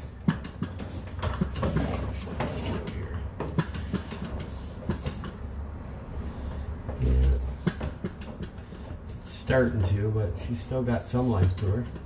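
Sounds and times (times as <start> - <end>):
cable rattling and knocking: 0.0 - 5.4, 6.9 - 10.0.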